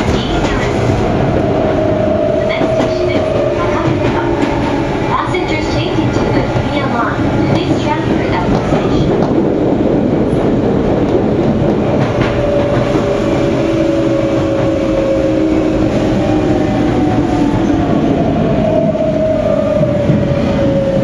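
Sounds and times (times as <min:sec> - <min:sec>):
train inverter whining: 0:00.0 - 0:21.0
wheels rumbling on rail: 0:00.0 - 0:21.0.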